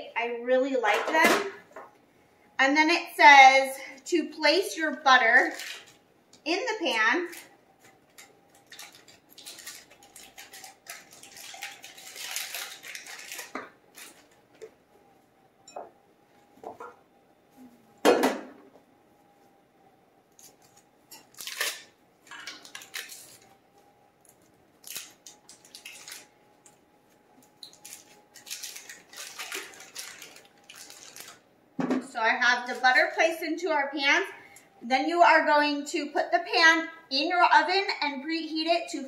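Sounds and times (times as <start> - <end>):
faint steady hum: 0.0 - 39.0
paper wrappers crinkling: 5.3 - 6.0, 6.8 - 14.8, 20.3 - 31.4.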